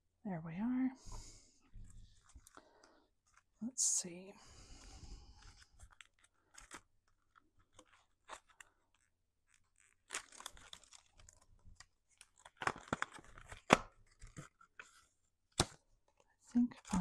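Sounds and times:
plastic packaging crinkling: 5.4s - 15.0s.

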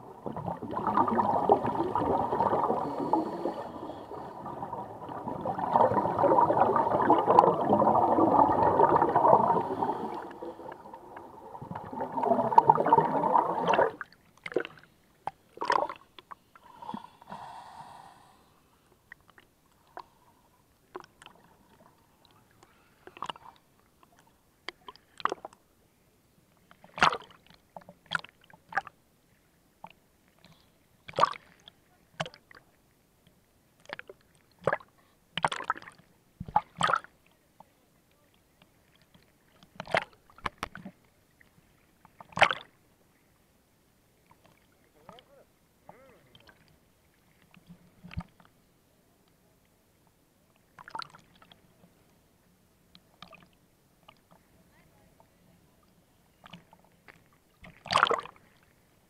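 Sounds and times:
scuba exhaust bubbles underwater: 0.0s - 14.8s
small waves splashing: 0.0s - 16.2s.

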